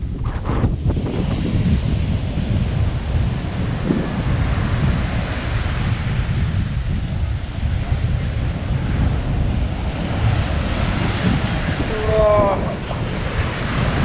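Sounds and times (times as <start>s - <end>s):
ocean surf breaking: 0.0s - 14.0s
wind buffeting microphone: 0.0s - 14.0s.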